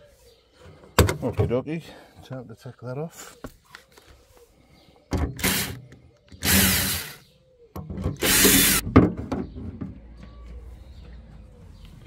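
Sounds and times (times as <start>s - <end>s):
cordless driver backing out screws: 5.2s - 5.8s, 6.4s - 7.2s, 8.2s - 8.8s.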